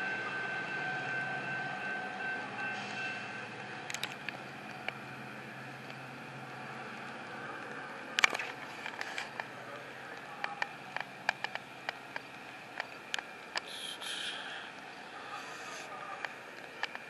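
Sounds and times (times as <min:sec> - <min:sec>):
faint background noise: 0:02.8 - 0:17.0
brief hiss: 0:13.6 - 0:15.9.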